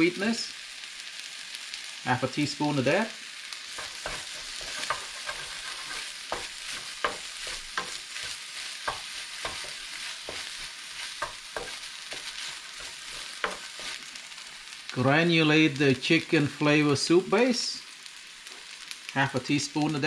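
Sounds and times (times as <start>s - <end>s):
rice sizzling in a pan: 0.0s - 20.0s
spatula scraping a pan: 3.6s - 14.1s.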